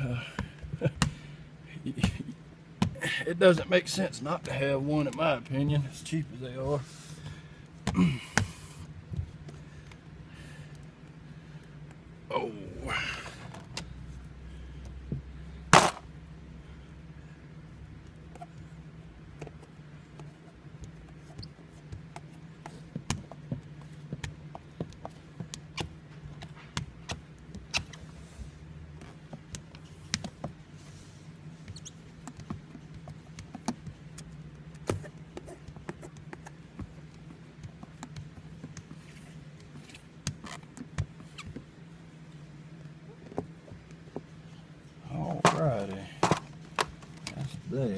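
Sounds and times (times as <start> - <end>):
steady low hum: 0.0 - 47.9
squeegee clicks and squeaks: 19.4 - 28.1, 31.4 - 41.8.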